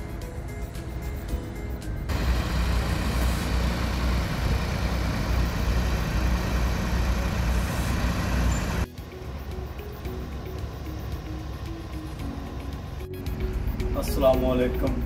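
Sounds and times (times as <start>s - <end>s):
background music: 0.0s - 5.0s, 8.5s - 15.0s
pump engine humming: 0.0s - 15.0s.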